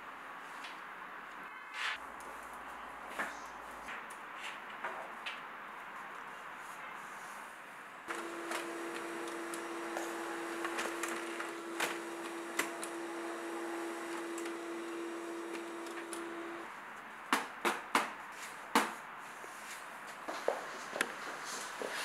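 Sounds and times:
printer humming and clicking: 0:08.1 - 0:16.7.

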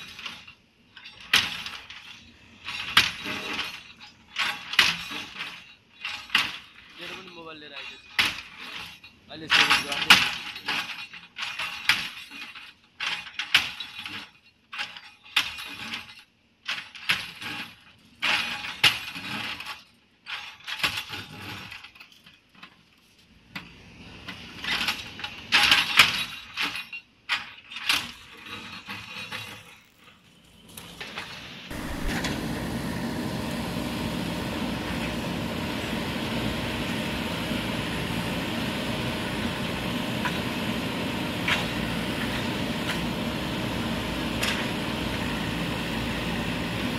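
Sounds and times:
diesel engine running: 0:31.5 - 0:46.9.

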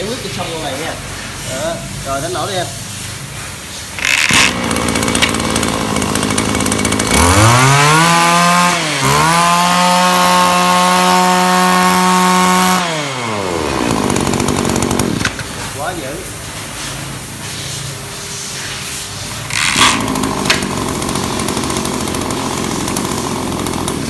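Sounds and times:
recoil starter pull: 0:04.0 - 0:07.8, 0:13.1 - 0:15.6, 0:19.5 - 0:24.0
brush cutter engine revving: 0:04.0 - 0:15.5, 0:19.4 - 0:24.0.

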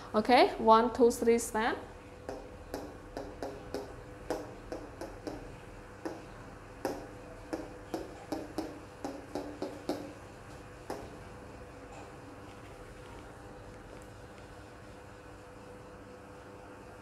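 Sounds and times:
marker tapping on whiteboard: 0:02.3 - 0:10.2, 0:10.9 - 0:11.1.

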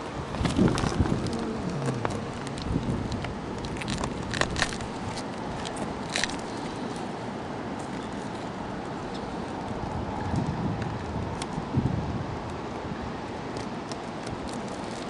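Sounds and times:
plastic tubes crackling and clicking: 0:00.3 - 0:07.1, 0:13.5 - 0:15.0.

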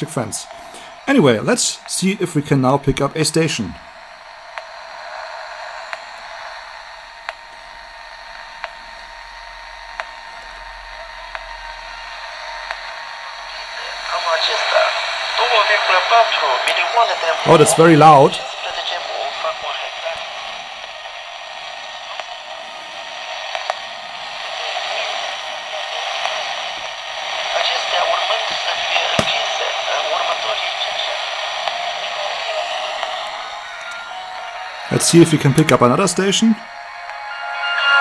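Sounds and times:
radio static hiss: 0:00.0 - 0:37.2
sharp interference ticks: 0:00.1 - 0:14.2, 0:19.9 - 0:28.4.

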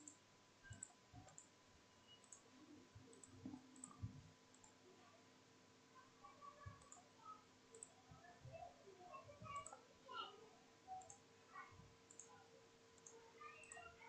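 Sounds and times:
computer mouse clicks: 0:00.0 - 0:01.5, 0:02.1 - 0:02.5, 0:03.1 - 0:04.8, 0:06.7 - 0:07.0, 0:07.7 - 0:08.0, 0:09.6 - 0:09.8, 0:10.9 - 0:11.2, 0:12.1 - 0:12.4, 0:13.0 - 0:13.9.

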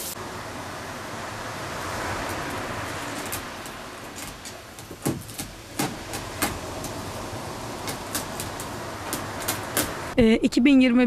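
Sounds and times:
background hiss: 0:00.0 - 0:11.0
cat clawing scratching post: 0:03.0 - 0:10.0.

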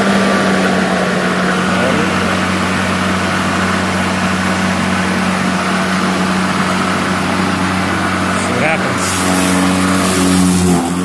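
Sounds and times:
electric lawn mower running: 0:00.0 - 0:11.0.

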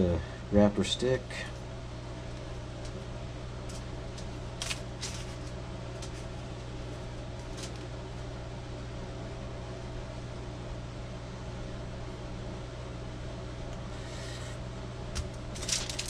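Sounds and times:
low machine hum: 0:00.0 - 0:16.0
foil crinkling: 0:03.7 - 0:06.4, 0:15.2 - 0:16.0.

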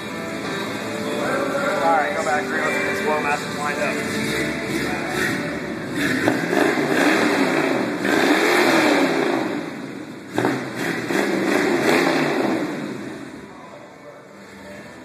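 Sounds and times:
pickup truck engine revving: 0:01.8 - 0:13.5.

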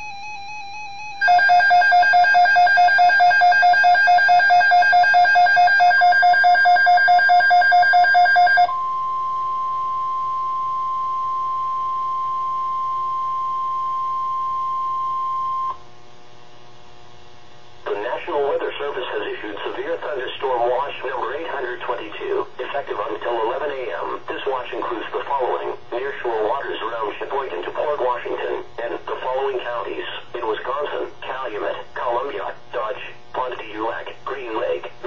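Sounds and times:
steady alarm tone: 0:00.0 - 0:15.8.

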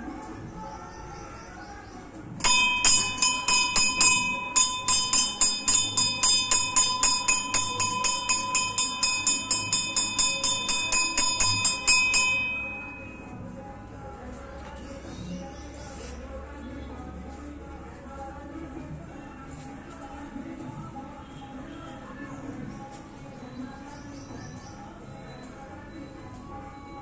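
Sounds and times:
temple bell rung rapidly: 0:02.4 - 0:13.2.

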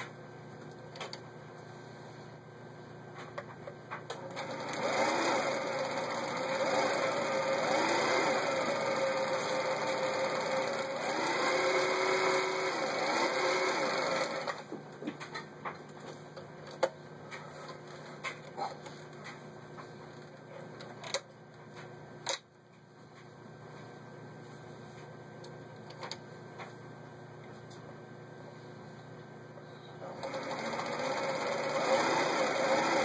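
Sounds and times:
sewing machine stitching: 0:04.2 - 0:14.7, 0:30.0 - 0:33.0.

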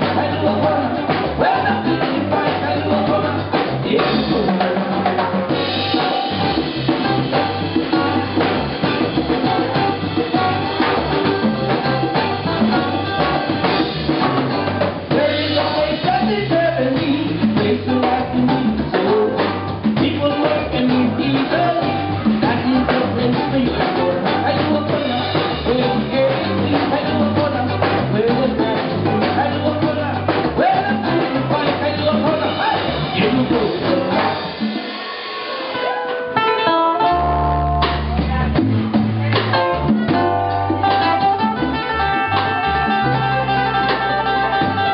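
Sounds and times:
man singing: 0:00.0 - 0:08.5, 0:14.6 - 0:34.6, 0:41.2 - 0:44.9
bass guitar: 0:00.0 - 0:44.9
drum kit: 0:00.0 - 0:44.9.

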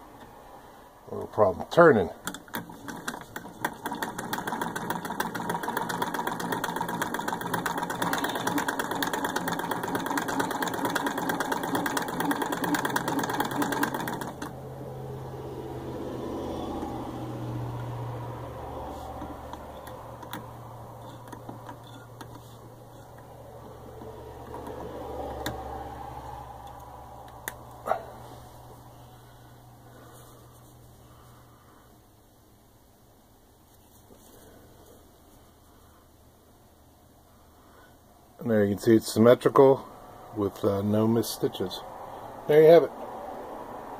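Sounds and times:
sewing machine clatter: 0:02.2 - 0:14.6, 0:18.9 - 0:25.6
low hum: 0:14.5 - 0:31.9.

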